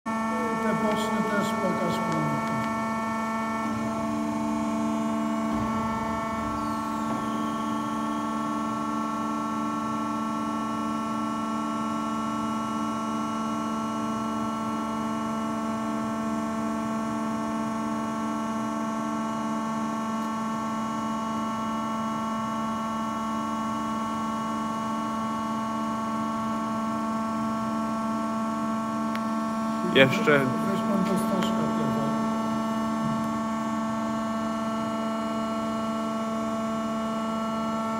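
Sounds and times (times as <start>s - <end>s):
machine motors humming: 0.1s - 10.0s, 29.7s - 35.0s.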